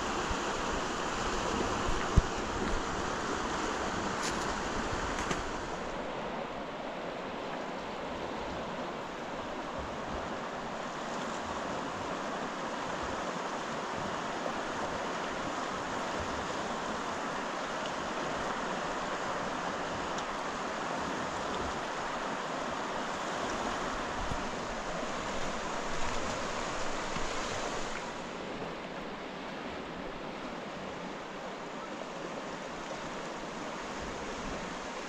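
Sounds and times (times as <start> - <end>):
rushing water: 0.0 - 35.0.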